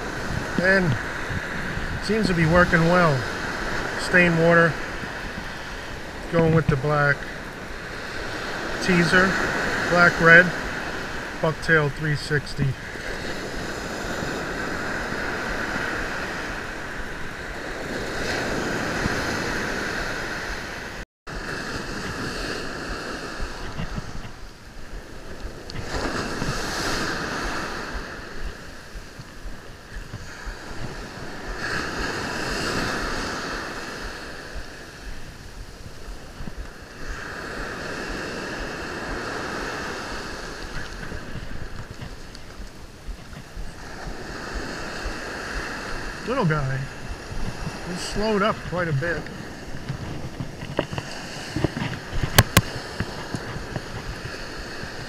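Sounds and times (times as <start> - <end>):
surf breaking on a beach: 0.0 - 55.0
wind buffeting the microphone: 0.0 - 55.0.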